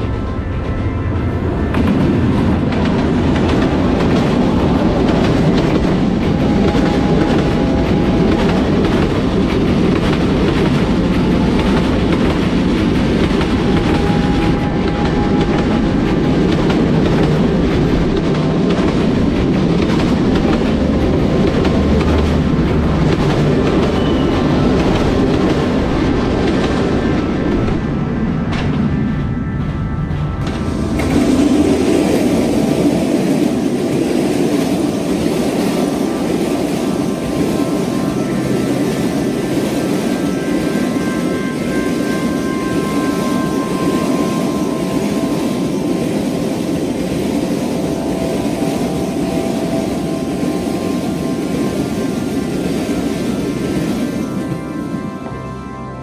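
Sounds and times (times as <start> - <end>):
diesel locomotive rumble: 0.0 - 56.0
train wheels clattering over rail joints: 1.7 - 29.3.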